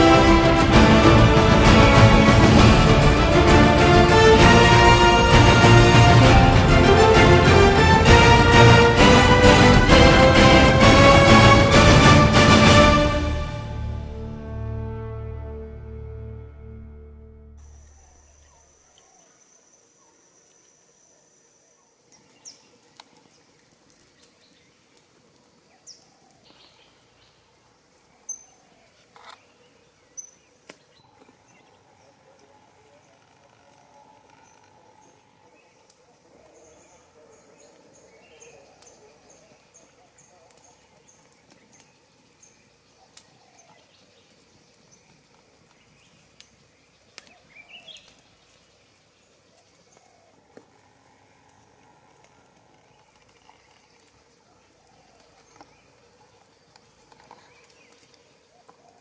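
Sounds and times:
campfire crackling: 0:00.0 - 0:15.4, 0:22.8 - 0:28.2, 0:32.4 - 0:59.0
high insect buzz: 0:17.4 - 0:18.8.

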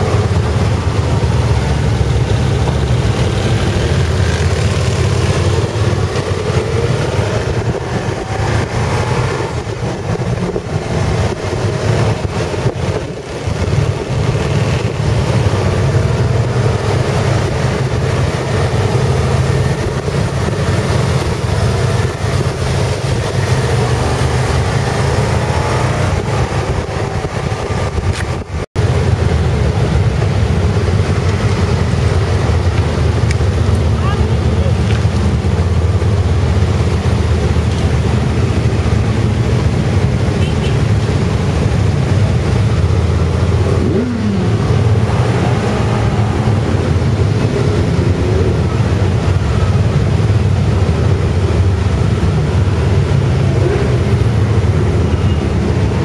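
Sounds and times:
motorcycle engines running: 0:00.0 - 0:56.0.

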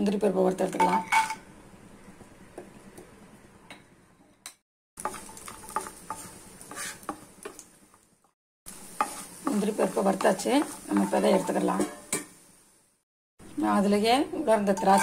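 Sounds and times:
wooden spatula scraping pan: 0:05.0 - 0:07.6, 0:08.9 - 0:12.1, 0:14.6 - 0:15.0
nuts sizzling in a pan: 0:05.0 - 0:13.0.

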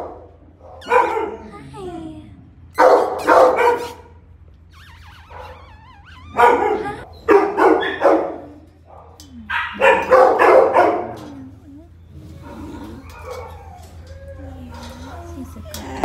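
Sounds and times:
dogs barking: 0:00.0 - 0:01.9, 0:02.7 - 0:04.2, 0:06.3 - 0:11.6, 0:12.2 - 0:16.0
dog whining: 0:00.7 - 0:08.6, 0:09.4 - 0:16.0.

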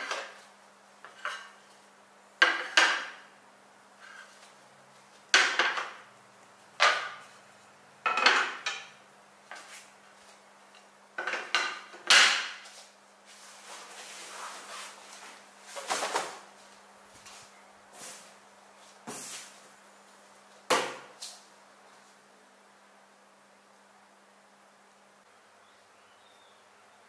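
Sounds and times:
wooden clacks and knocks: 0:05.3 - 0:06.0, 0:06.8 - 0:07.3, 0:08.1 - 0:08.9, 0:11.2 - 0:12.6.

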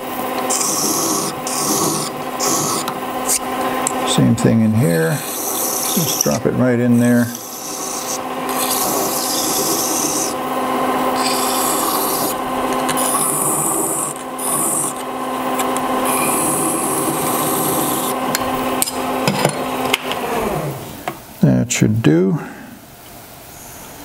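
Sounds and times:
lathe humming: 0:00.0 - 0:21.0
hand file strokes on metal: 0:00.5 - 0:03.4, 0:04.4 - 0:10.4, 0:11.2 - 0:15.0.

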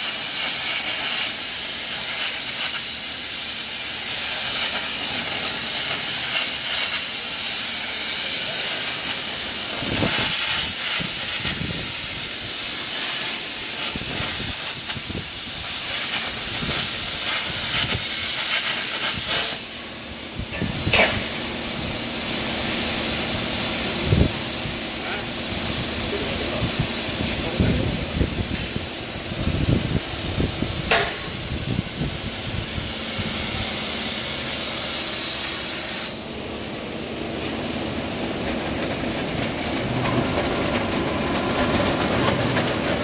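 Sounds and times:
plasma cutter hissing: 0:00.0 - 0:39.8.

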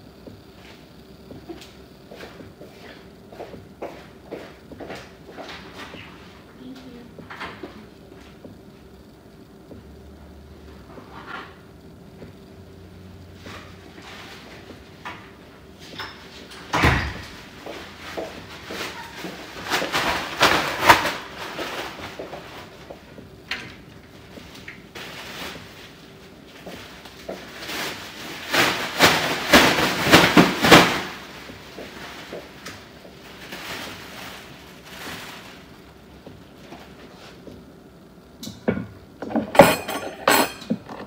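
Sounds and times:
faint steady hum: 0:00.0 - 0:41.0
objects knocking and clattering: 0:38.4 - 0:41.0.

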